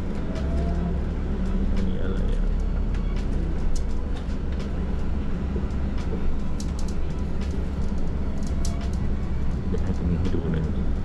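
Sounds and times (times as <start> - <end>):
bus engine and road rumble: 0.0 - 11.0
bodywork clicks and rattles: 6.0 - 9.0.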